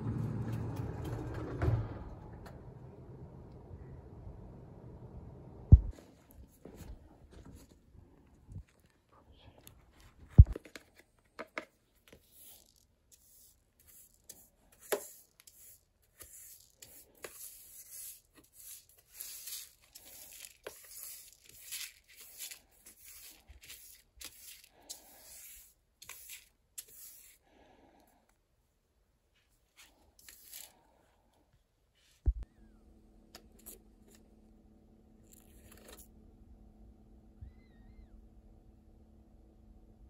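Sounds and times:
brush sweeping cat litter: 12.1s - 27.5s, 29.5s - 30.8s.

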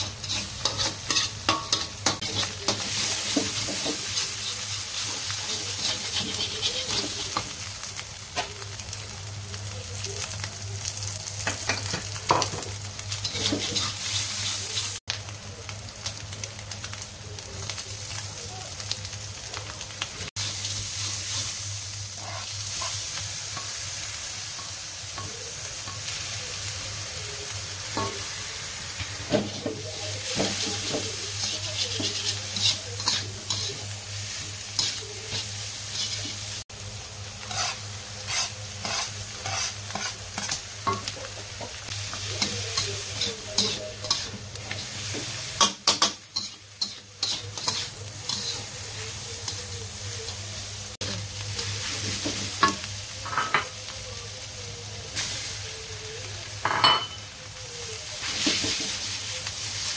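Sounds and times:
metal spatula scraping a wok: 0.0s - 7.5s, 30.4s - 36.5s, 37.4s - 40.6s, 42.3s - 48.8s
food sizzling: 0.0s - 59.9s.

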